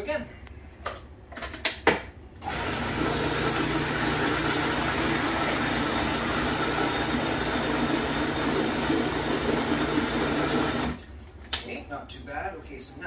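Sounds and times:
food processor motor humming: 0:02.4 - 0:11.0.

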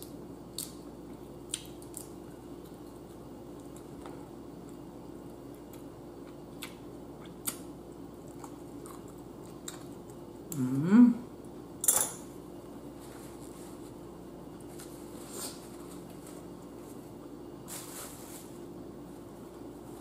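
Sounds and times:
person humming mmm: 0:10.5 - 0:11.3.

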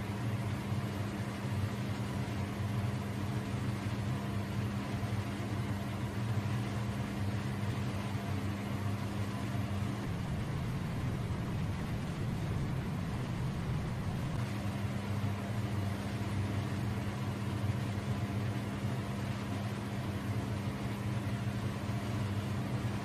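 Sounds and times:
machine hum with low drone: 0:00.0 - 0:23.0
higher hum tone: 0:09.6 - 0:14.6.

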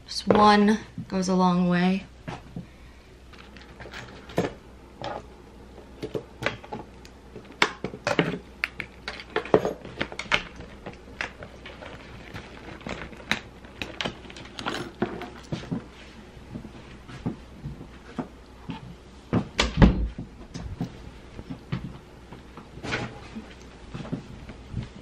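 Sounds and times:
handbag clicks and clinks: 0:08.6 - 0:15.6.

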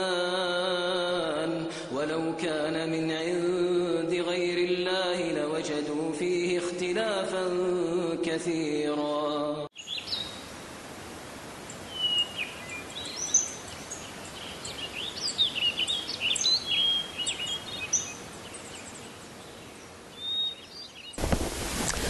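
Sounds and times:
person chanting: 0:00.0 - 0:09.7
outdoor ambient hiss: 0:00.0 - 0:22.0
birds chirping: 0:09.8 - 0:10.5, 0:11.6 - 0:22.0.

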